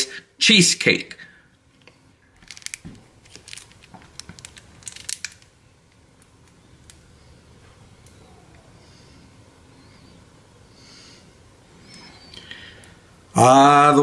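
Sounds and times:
squeeze bottle crackling: 2.4s - 5.4s.

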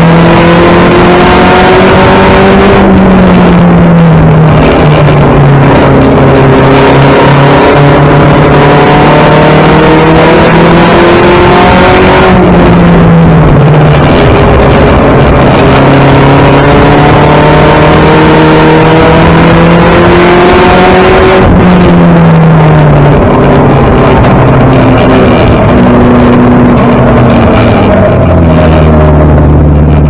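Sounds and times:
race car engine under hard throttle: 0.0s - 30.0s.

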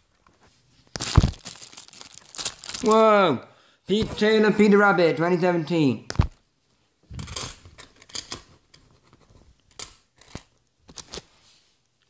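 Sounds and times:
coins clicking and scraping: 7.2s - 8.9s, 9.7s - 11.2s.

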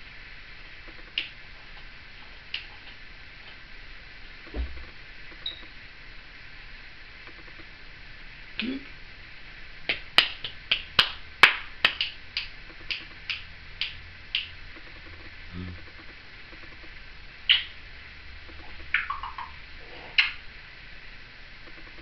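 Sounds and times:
parrot clicking: 0.9s - 1.4s, 9.9s - 16.9s, 17.5s - 17.8s, 18.5s - 19.6s
parrot falling chirp: 18.8s - 19.6s.

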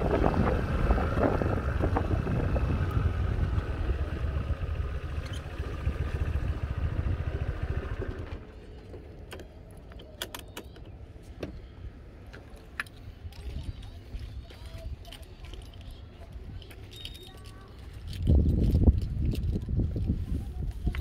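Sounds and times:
motor scooter engine running: 0.0s - 9.7s
road rumble: 0.0s - 21.0s
wind: 0.0s - 21.0s.

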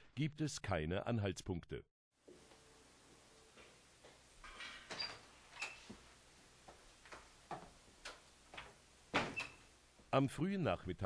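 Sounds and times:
footsteps: 2.2s - 4.7s, 5.6s - 10.1s.

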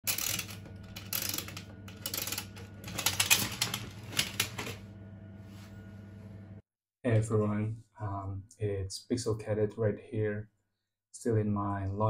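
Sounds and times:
rapid mechanical clicking: 0.0s - 4.7s
steady low hum: 0.1s - 9.2s.

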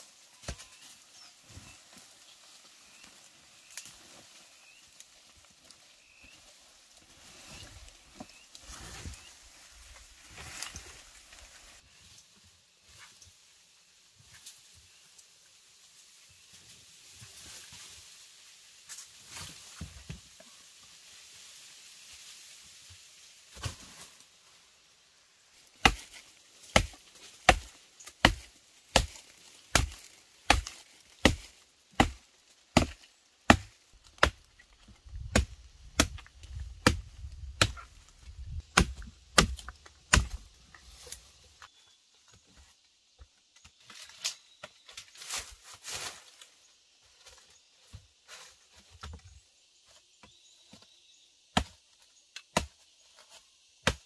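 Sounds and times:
wood being chopped: 25.8s - 34.4s, 35.2s - 37.9s, 38.7s - 40.4s, 51.5s - 51.8s, 52.5s - 52.7s.

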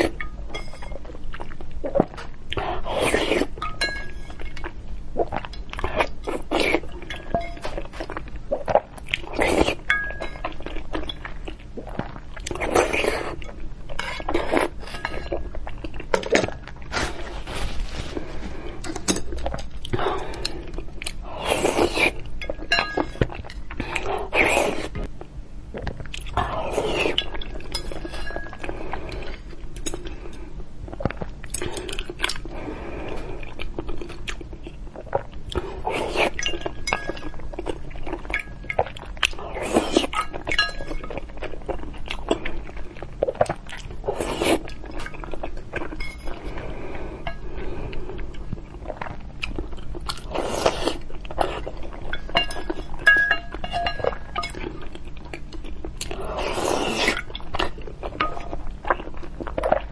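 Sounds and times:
spoon and chopsticks clinking on bowl: 3.6s - 4.3s, 7.1s - 7.7s, 22.4s - 23.2s, 40.2s - 41.1s, 52.1s - 54.6s.

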